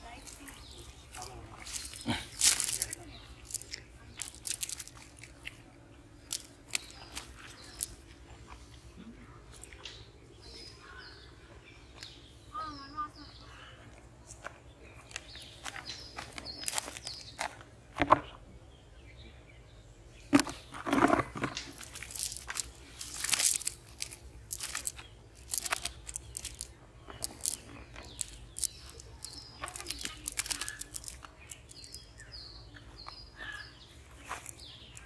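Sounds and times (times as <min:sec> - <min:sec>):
crunching of dry grass: 0:00.0 - 0:08.8, 0:14.2 - 0:18.3, 0:20.3 - 0:35.0
net mesh rustling: 0:00.2 - 0:05.4, 0:20.6 - 0:32.0.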